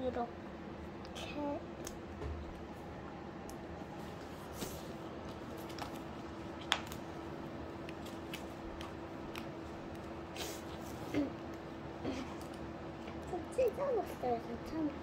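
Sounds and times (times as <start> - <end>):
faint steady hum: 0.0 - 15.0
paper sticker sheets rustling: 4.0 - 7.1.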